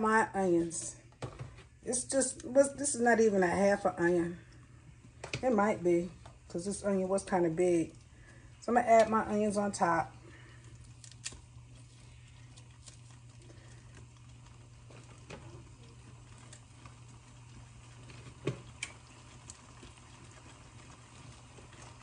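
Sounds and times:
steady low hum: 0.0 - 22.0
onion pulled apart by hand: 10.9 - 11.5.

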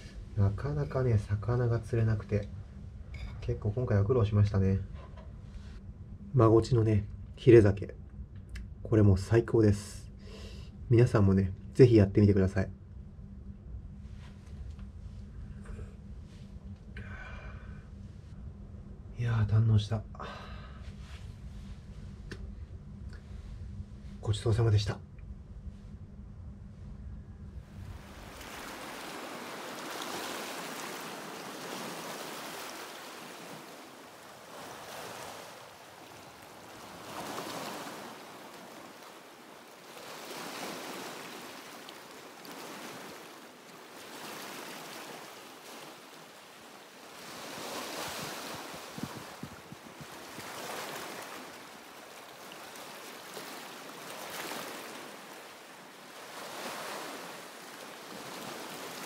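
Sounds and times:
sea waves breaking on rocks: 27.9 - 59.0.

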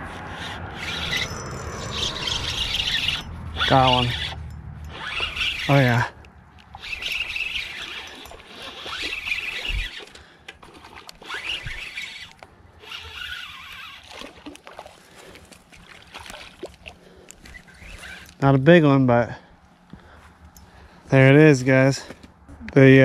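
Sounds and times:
fishing reel cranking: 0.1 - 14.6, 17.4 - 18.5.

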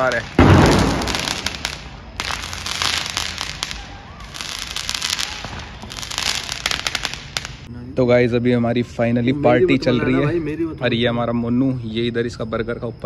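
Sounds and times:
fireworks crackling: 0.0 - 7.7.

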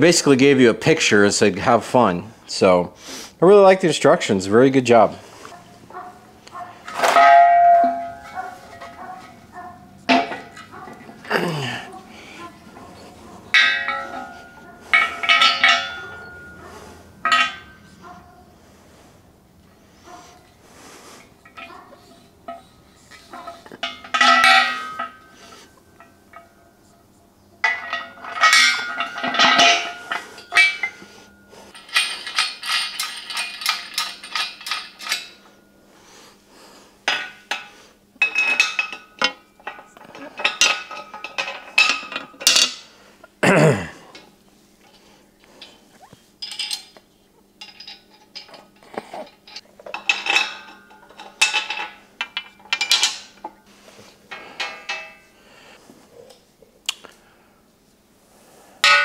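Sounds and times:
metal parts clinking and clanking: 5.0 - 18.4, 21.2 - 26.8, 27.6 - 35.7, 37.1 - 42.9, 44.1 - 53.7, 54.3 - 55.4, 58.8 - 59.0.

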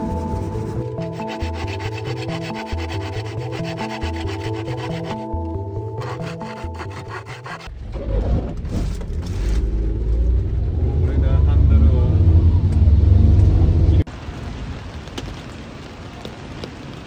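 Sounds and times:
hand saw cutting wood: 0.0 - 7.7.

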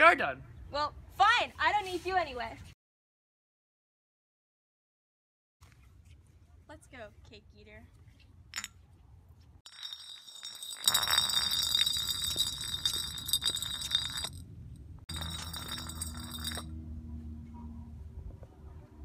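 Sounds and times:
glass bottle rolling on concrete: 8.5 - 8.8, 9.7 - 14.5, 15.1 - 16.7.

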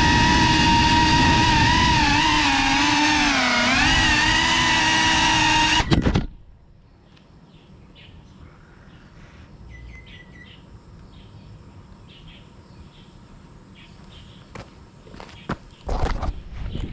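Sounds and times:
birds chirping: 6.7 - 16.9
bird trill: 9.7 - 11.4.

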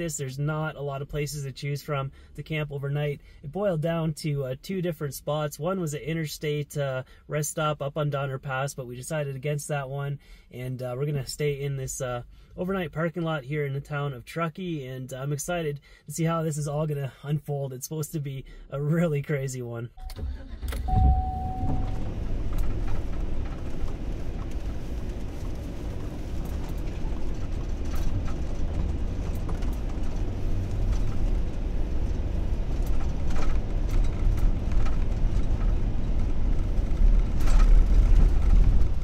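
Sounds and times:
engine and road rumble: 0.0 - 39.0
short beep: 20.0 - 22.1.

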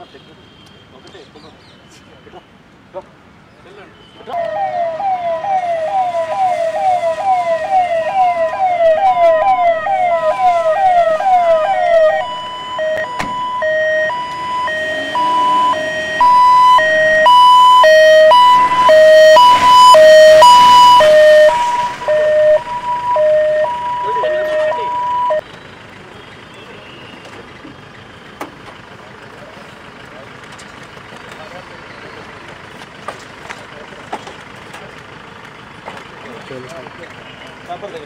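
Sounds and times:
ambulance siren wailing: 4.2 - 25.4.

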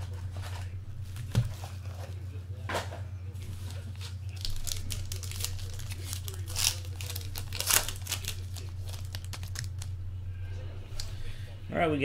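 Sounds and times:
foil wrapper tearing and crinkling: 3.6 - 10.0.

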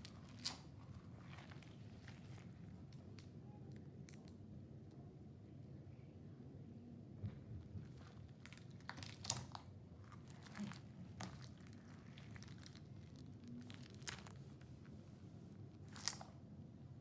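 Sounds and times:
stress ball crinkly crackles: 0.0 - 4.4, 7.6 - 15.0, 15.6 - 16.4.

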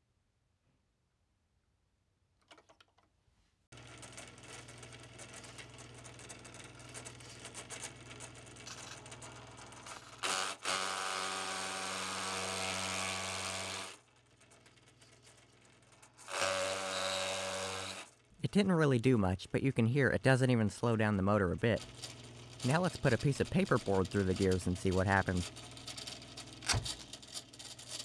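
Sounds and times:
motor hum and gear whir: 3.8 - 18.3
propeller scraping cardboard tube: 21.8 - 28.0.

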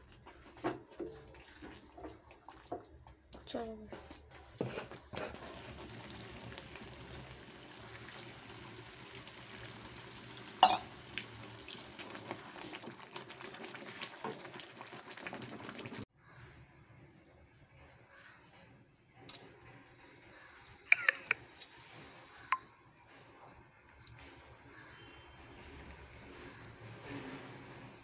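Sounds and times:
gravy simmering and sizzling: 0.0 - 3.6, 4.2 - 16.1
spoon stirring and clinking in pan: 10.6 - 10.9.

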